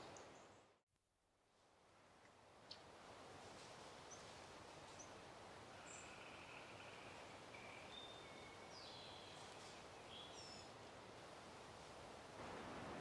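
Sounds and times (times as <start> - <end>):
soft steady hiss: 0.0 - 13.0
faint high bird calls: 4.9 - 10.7.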